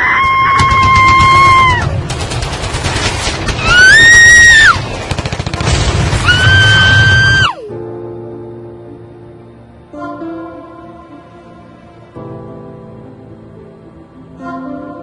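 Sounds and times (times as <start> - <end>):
high screams: 0.0 - 1.9, 3.6 - 4.8, 6.2 - 7.7
rapid gunfire: 0.2 - 7.3
music: 5.2 - 15.0.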